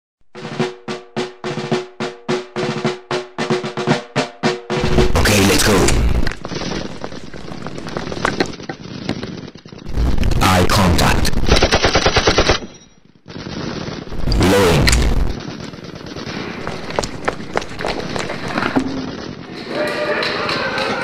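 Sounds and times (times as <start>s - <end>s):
rapid automatic gunfire: 4.8s - 19.4s.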